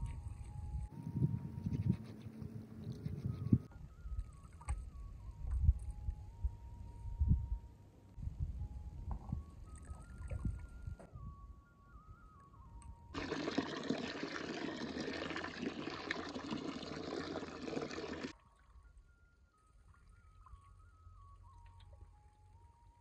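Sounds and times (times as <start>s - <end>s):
faint melody: 0.0s - 13.2s, 18.3s - 23.0s.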